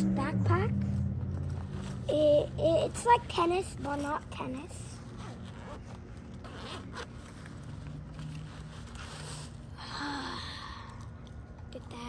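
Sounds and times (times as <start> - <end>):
zipper being pulled open: 1.3 - 9.8.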